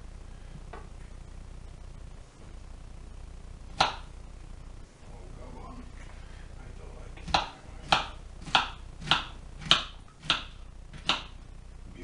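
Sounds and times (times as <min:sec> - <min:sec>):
knife chopping on wooden board: 0:07.2 - 0:11.3.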